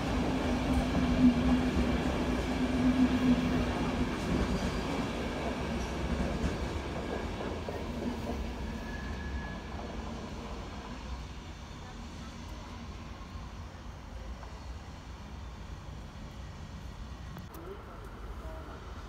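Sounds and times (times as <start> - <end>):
passenger train rumbling: 0.0 - 19.0.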